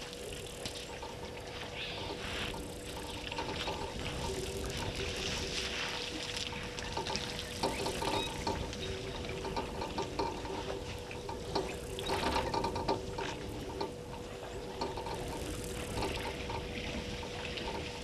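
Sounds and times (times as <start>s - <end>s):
faint steady hum: 0.0s - 18.0s
water pouring and sloshing: 0.0s - 18.0s
small clicks and knocks: 6.7s - 18.0s.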